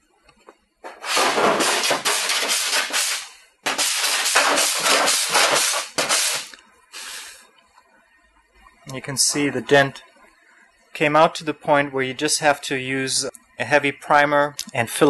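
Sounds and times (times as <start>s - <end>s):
file scraping metal panel: 0.9s - 6.5s.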